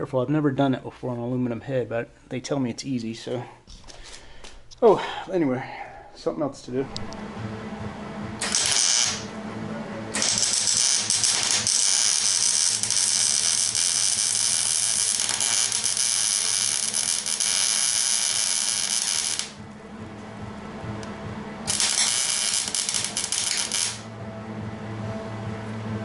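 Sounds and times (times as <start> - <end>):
welding arc crackling and hissing: 8.4 - 9.3, 10.2 - 19.6, 21.7 - 24.1.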